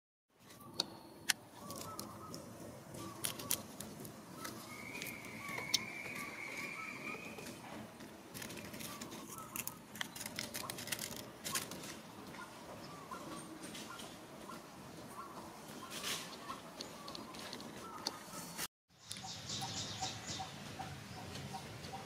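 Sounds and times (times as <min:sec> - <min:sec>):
rustling in dry leaves: 0:08.3 - 0:12.5.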